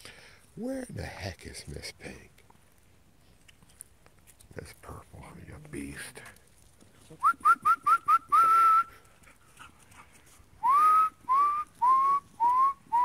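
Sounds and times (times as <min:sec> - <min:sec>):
person whistling rising chirps: 0:07.2 - 0:08.9, 0:10.6 - 0:13.0.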